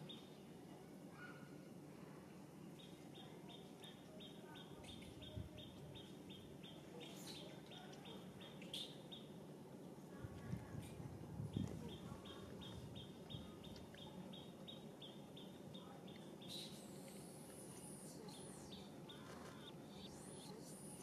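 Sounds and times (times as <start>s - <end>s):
high wavering buzz: 16.7s - 21.0s.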